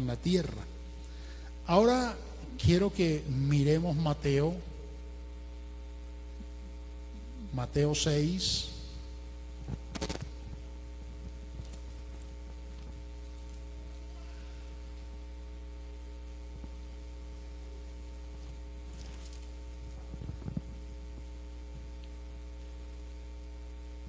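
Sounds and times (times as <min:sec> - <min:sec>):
electrical mains hum: 0:00.0 - 0:24.0
pages being turned: 0:09.9 - 0:10.3, 0:18.9 - 0:19.6.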